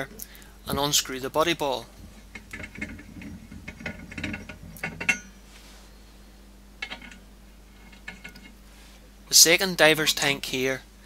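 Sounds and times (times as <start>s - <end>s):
small metallic clicks and rattles: 2.0s - 5.3s.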